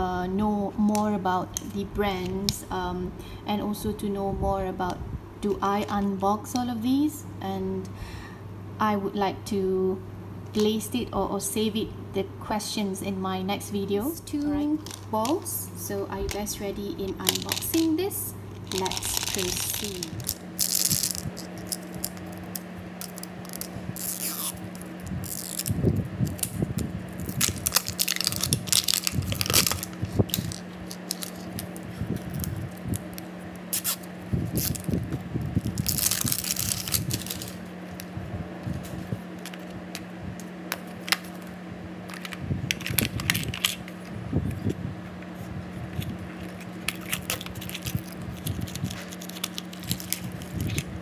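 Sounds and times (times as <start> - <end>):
low steady hum: 0.0 - 51.0
plastic wrapping crinkling: 14.7 - 40.1, 42.1 - 44.7, 45.3 - 51.0.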